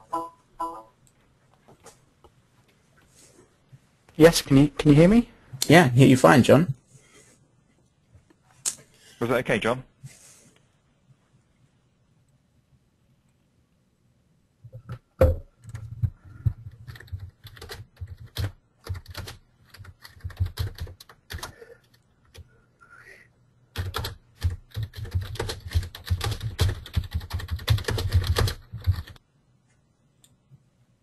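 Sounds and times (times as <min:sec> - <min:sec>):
typing on computer keyboard: 0:15.6 - 0:22.5, 0:23.7 - 0:29.2.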